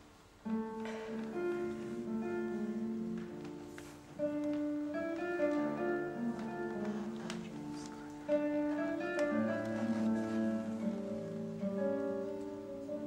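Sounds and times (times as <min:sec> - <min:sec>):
classical guitar playing: 0:00.0 - 0:13.0.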